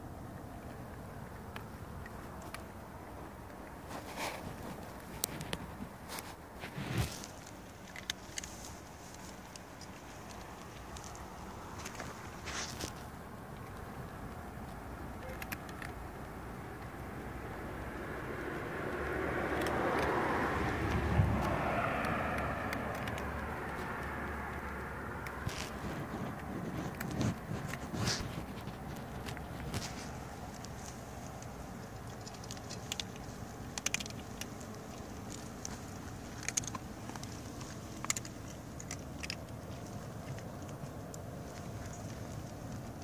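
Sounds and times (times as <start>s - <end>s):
cats crunching dry kibble: 0.0s - 43.0s
low background noise: 0.0s - 43.0s
car passing: 15.8s - 42.9s.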